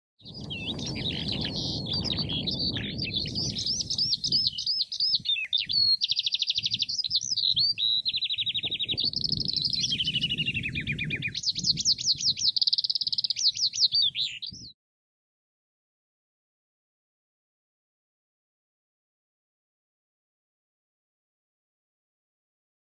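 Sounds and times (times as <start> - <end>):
skylark singing: 0.2 - 14.7.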